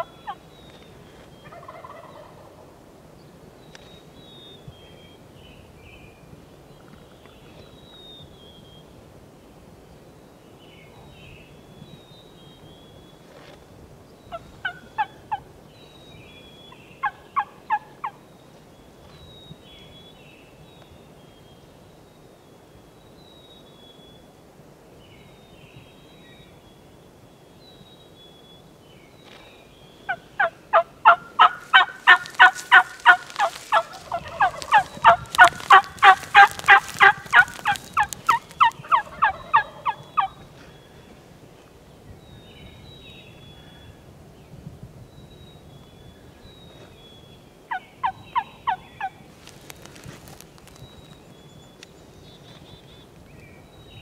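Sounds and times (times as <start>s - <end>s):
turkey yelping: 0.0s - 0.4s, 30.1s - 40.3s
faint songbird chirps: 3.2s - 9.0s, 9.9s - 54.0s.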